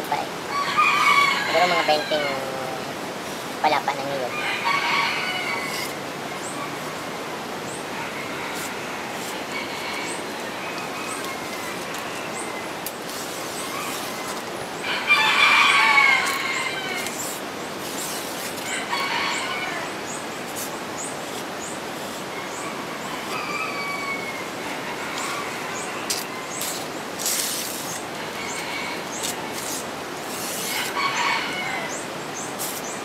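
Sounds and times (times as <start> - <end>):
steady background hiss: 0.0 - 33.0
rooster crowing: 0.5 - 2.6, 4.3 - 6.0, 7.9 - 12.8, 13.6 - 17.4, 18.0 - 20.2, 22.3 - 26.8, 28.1 - 29.8, 30.4 - 32.1.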